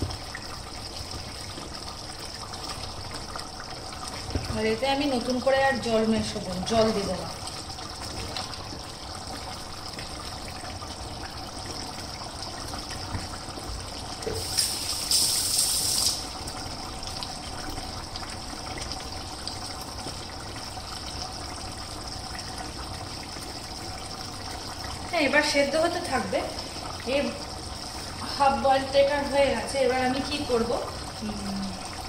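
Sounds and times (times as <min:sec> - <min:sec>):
pot simmering: 0:00.0 - 0:32.0
steady hiss and hum: 0:00.0 - 0:32.0
burst of high hissing: 0:14.4 - 0:16.2.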